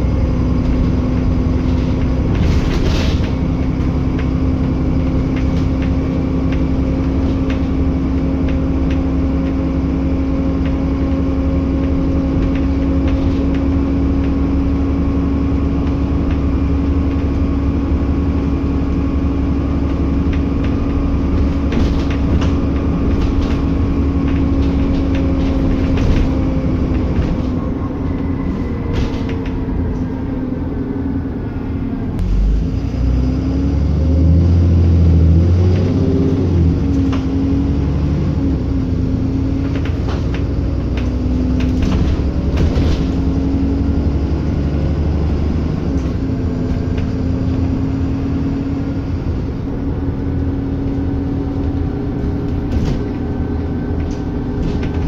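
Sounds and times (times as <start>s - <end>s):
bus engine drone: 0.0s - 55.0s
bodywork rattles and clicks: 0.5s - 29.7s, 39.2s - 48.2s, 49.1s - 55.0s.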